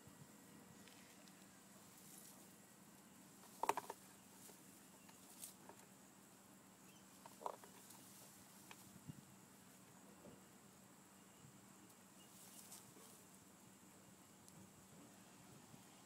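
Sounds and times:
faint steady hiss: 0:00.0 - 0:16.0
soft clicks and rustles: 0:00.8 - 0:06.0, 0:07.1 - 0:09.0, 0:11.8 - 0:13.3.

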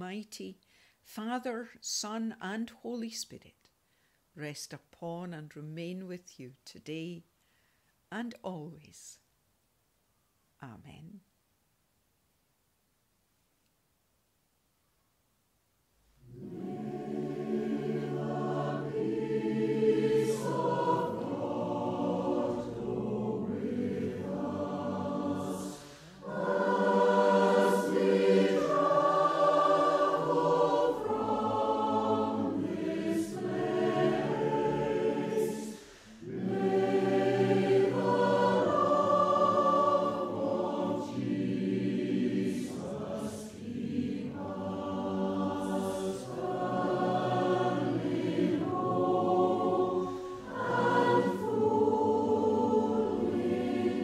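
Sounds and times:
choir singing: 0:16.2 - 0:54.0.

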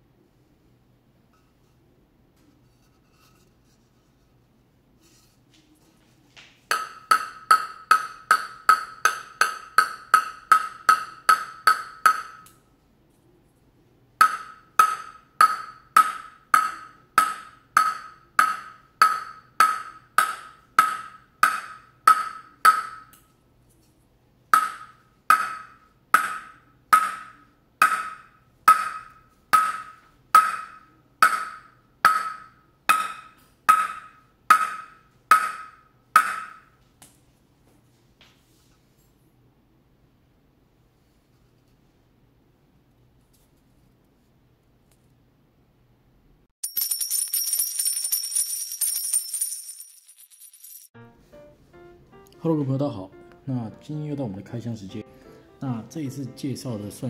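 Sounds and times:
table tennis ball bouncing on wood: 0:06.7 - 0:12.5, 0:14.2 - 0:23.2, 0:24.5 - 0:36.8.

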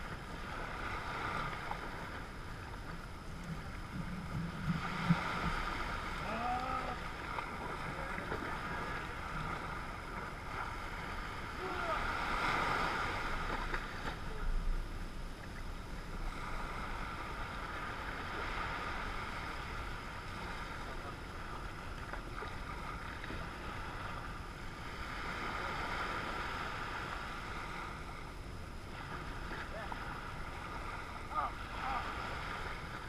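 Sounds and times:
waves breaking on beach: 0:00.0 - 0:33.0
wind on microphone: 0:03.4 - 0:14.7.

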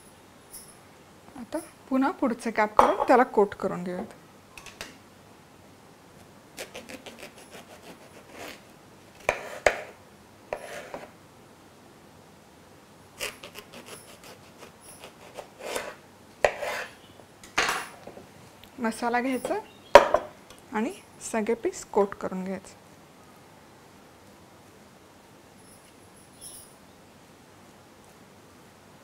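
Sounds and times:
knife cutting eggplant: 0:06.6 - 0:11.1, 0:13.2 - 0:17.0
knife knocking on wooden board: 0:19.4 - 0:20.3.

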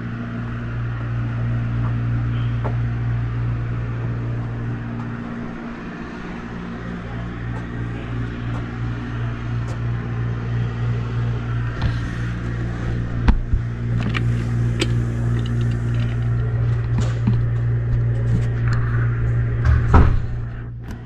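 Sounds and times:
steady low hum: 0:00.0 - 0:21.0
sharp clicks and knocks: 0:13.2 - 0:18.8.

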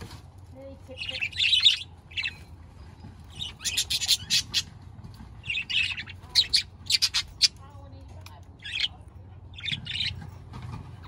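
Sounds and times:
budgerigars chirping: 0:00.9 - 0:04.8, 0:05.4 - 0:10.3.

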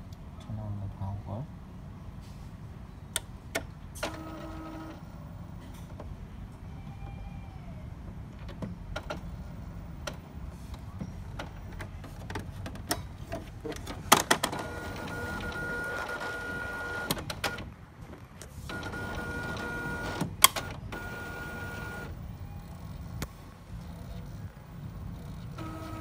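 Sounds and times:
printer motor whirring: 0:04.0 - 0:05.2, 0:14.3 - 0:17.7, 0:18.6 - 0:26.0
printer clicks: 0:13.7 - 0:17.7, 0:18.7 - 0:22.2, 0:25.1 - 0:26.0.

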